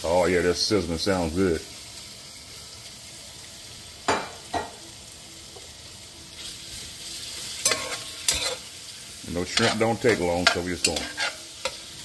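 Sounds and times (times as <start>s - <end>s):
shrimp sizzling in oil: 0.0s - 12.0s
spoon stirring in pan: 7.6s - 8.7s, 9.4s - 12.0s.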